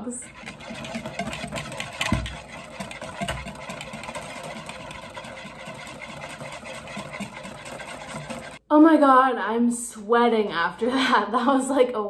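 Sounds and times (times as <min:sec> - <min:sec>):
whisk beating against bowl: 0:00.2 - 0:08.6.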